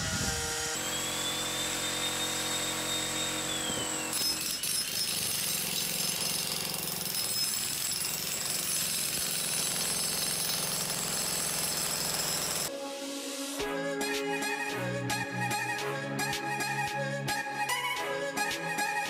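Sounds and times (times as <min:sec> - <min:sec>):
demolition hammer chiseling concrete: 0:00.4 - 0:12.7.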